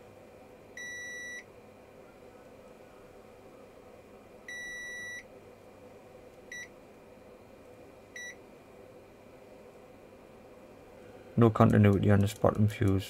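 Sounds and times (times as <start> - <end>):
multimeter beeping: 0.8 - 1.4, 4.5 - 5.2.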